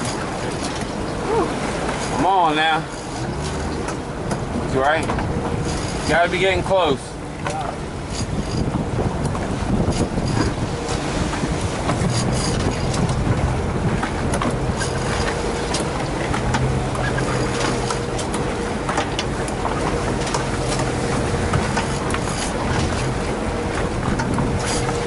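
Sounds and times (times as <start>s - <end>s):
outboard motor running: 0.0s - 25.0s
water noise: 0.0s - 25.0s
wind noise: 7.7s - 25.0s.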